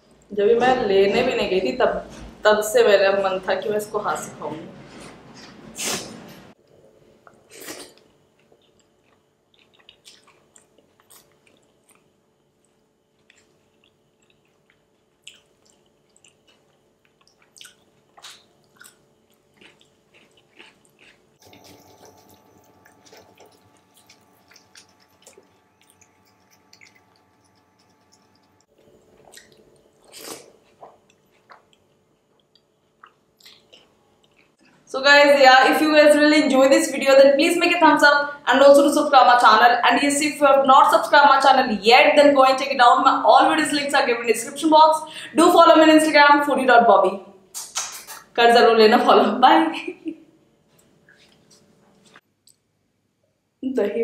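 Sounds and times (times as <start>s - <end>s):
quiet chewing: 6.6s - 34.8s, 50.7s - 52.7s
wet mouth smacks and clicks: 47.5s - 48.4s.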